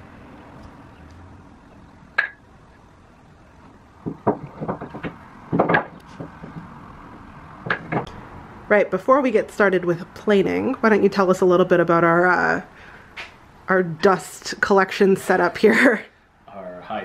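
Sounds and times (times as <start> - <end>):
wooden pieces knocking together: 2.2 - 2.4, 4.0 - 6.7, 7.6 - 8.1.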